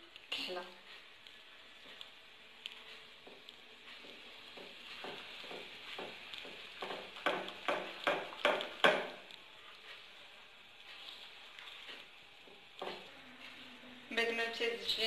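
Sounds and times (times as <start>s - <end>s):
batter slapping: 3.4s - 9.4s.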